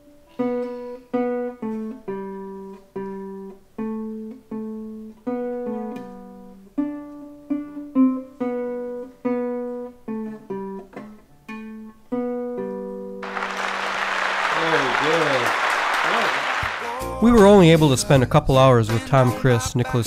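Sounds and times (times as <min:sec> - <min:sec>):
classical guitar plucked melody: 0:00.0 - 0:13.2.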